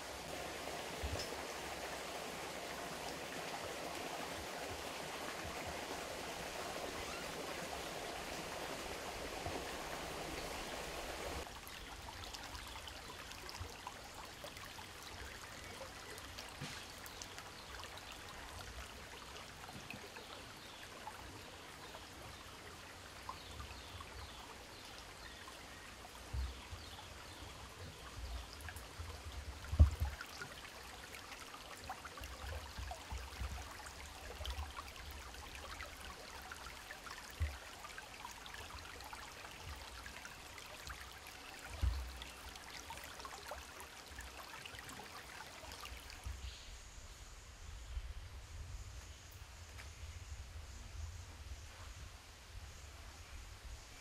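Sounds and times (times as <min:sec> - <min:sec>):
stream running over pebbles: 0:00.0 - 0:46.6.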